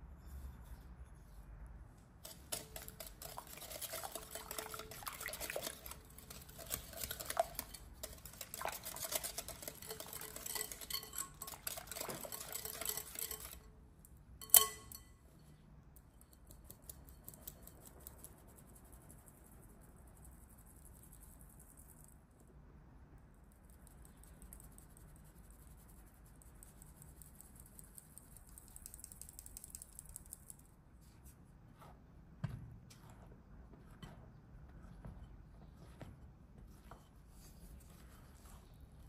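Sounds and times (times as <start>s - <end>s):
flour sifting through sieve: 2.2s - 13.7s, 33.0s - 39.0s
whisk clattering in glass bowl: 2.3s - 13.7s, 14.4s - 15.1s
sharp ringing clink: 14.4s - 15.2s.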